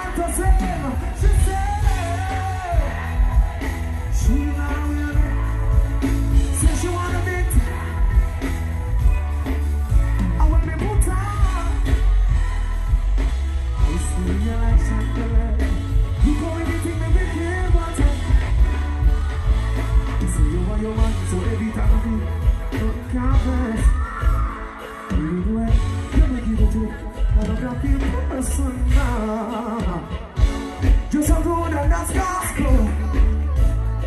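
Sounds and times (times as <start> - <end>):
man singing into a microphone: 0.0 - 3.4, 4.0 - 5.8, 6.6 - 8.0, 13.8 - 18.7, 20.0 - 30.4, 31.0 - 33.7
live dancehall band playing: 0.0 - 34.0.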